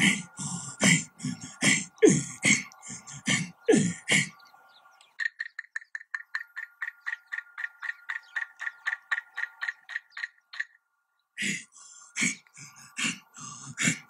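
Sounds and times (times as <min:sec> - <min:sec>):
forceful rhythmic breaths: 0:00.0 - 0:04.9, 0:11.4 - 0:14.0.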